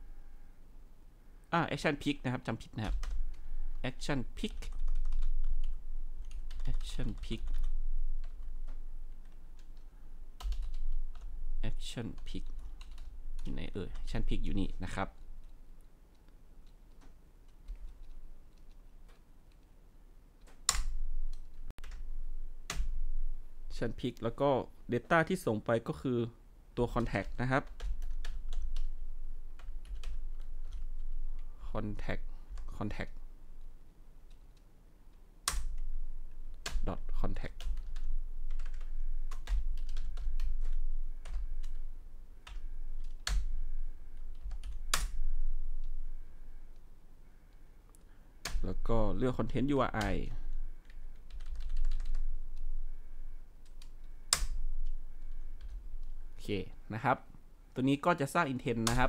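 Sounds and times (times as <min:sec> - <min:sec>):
keyboard typing clicks: 0:04.5 - 0:11.3.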